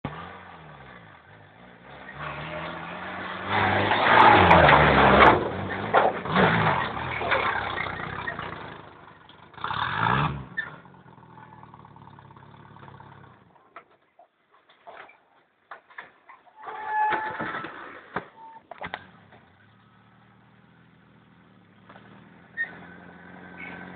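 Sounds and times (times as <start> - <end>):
off-road vehicle engine revving: 0.0 - 13.5, 18.9 - 23.9.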